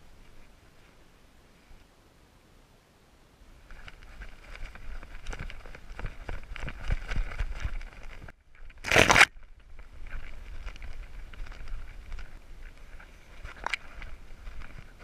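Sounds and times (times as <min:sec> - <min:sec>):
brush rustling past: 0:03.6 - 0:15.0.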